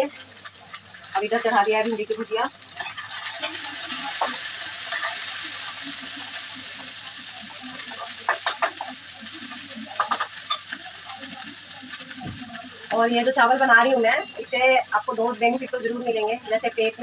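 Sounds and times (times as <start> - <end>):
okra sizzling in a pan: 0.0 - 17.0
spatula scraping a metal pan: 2.8 - 5.3.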